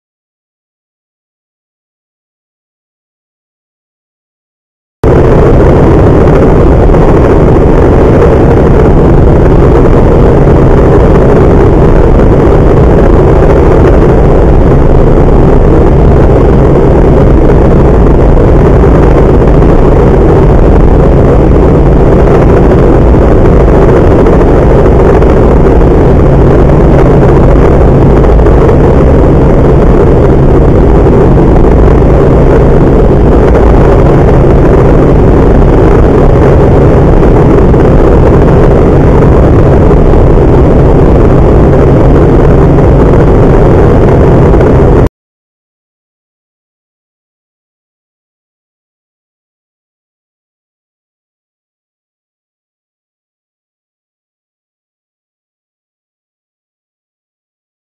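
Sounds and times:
helicopter engine and rotors drone: 5.0 - 45.1.

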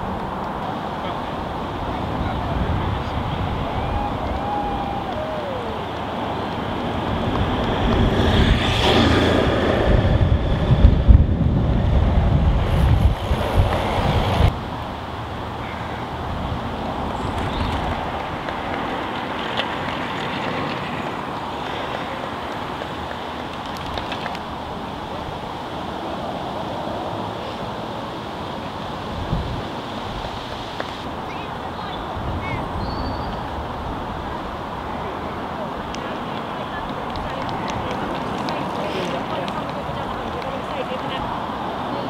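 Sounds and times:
distant road traffic: 0.0 - 42.0
wind hiss: 0.0 - 42.0
gusty low rumble: 6.7 - 14.6.

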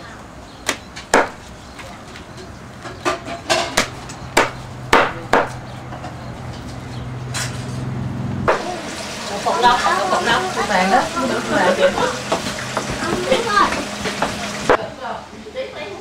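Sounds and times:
meat cleaver chopping: 0.6 - 1.5, 3.7 - 5.6, 12.2 - 14.8.

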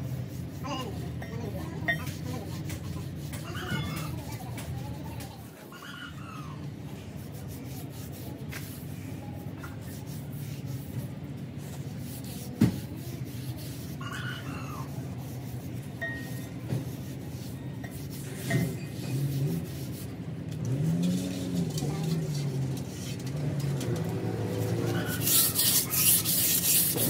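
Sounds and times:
rubbing and scraping on metal bearing: 0.0 - 6.2, 7.0 - 27.0.

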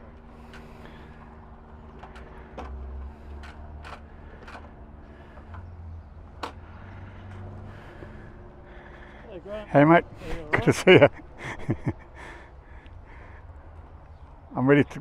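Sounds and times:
motorcycle engine idling: 0.0 - 10.0
sharp clicks and knocks: 1.9 - 4.8.

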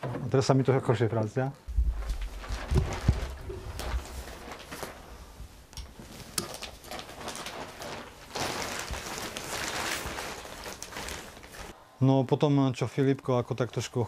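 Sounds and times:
steady rustling: 1.7 - 11.8.

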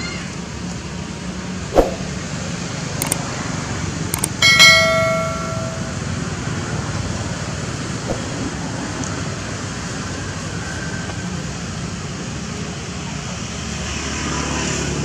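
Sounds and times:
falling swoosh: 1.8 - 2.2
mouse clicks: 4.2 - 4.4
bell ding: 4.2 - 6.2.

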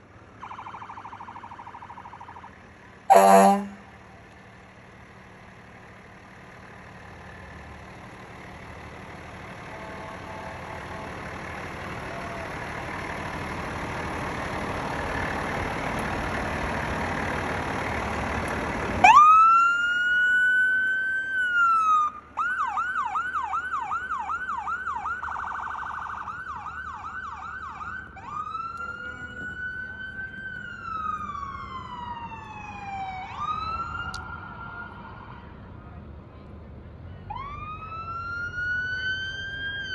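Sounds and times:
truck engine and tyre noise: 0.0 - 39.9
electronic siren wailing and yelping: 3.1 - 3.8.

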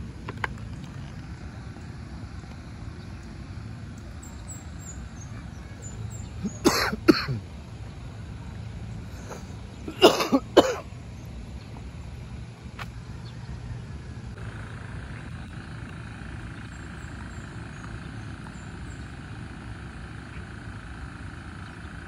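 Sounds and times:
steady low rumble: 0.0 - 22.0
person coughing: 6.4 - 7.4, 9.2 - 10.9.

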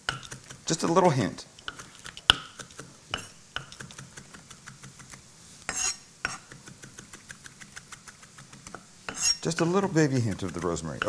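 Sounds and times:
knife chopping on wood: 6.3 - 11.0.

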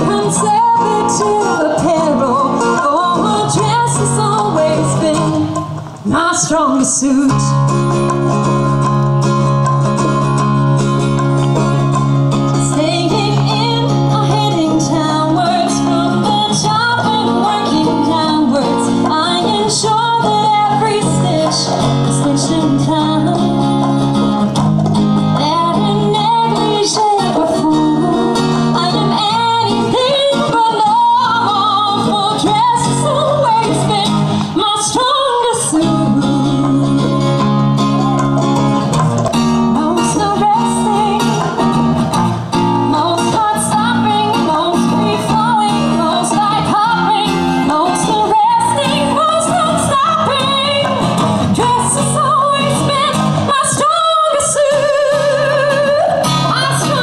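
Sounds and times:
woman singing into a microphone: 0.0 - 8.4, 12.4 - 38.0, 39.6 - 42.1, 42.8 - 57.0
acoustic guitar: 0.0 - 57.0.

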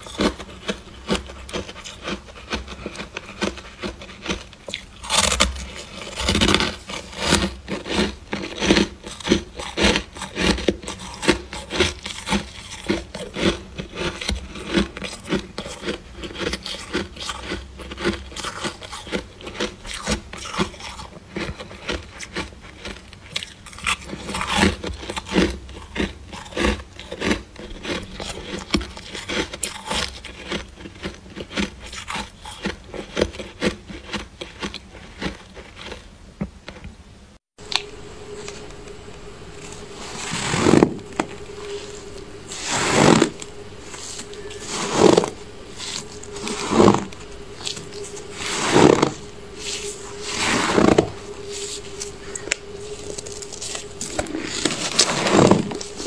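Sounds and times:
shaved ice crunching under hand: 0.0 - 36.0
freezer frost crunching: 0.0 - 36.1, 37.6 - 56.0
steady humming tone: 37.5 - 56.0.

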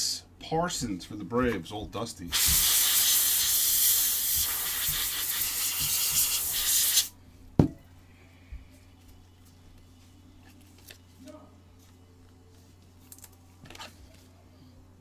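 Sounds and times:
loud steady hiss: 2.3 - 7.1.

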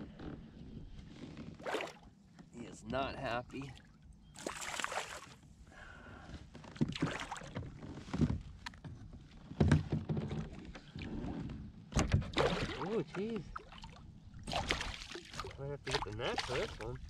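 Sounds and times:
water splashing: 1.6 - 2.0, 4.4 - 5.4, 12.3 - 17.0.

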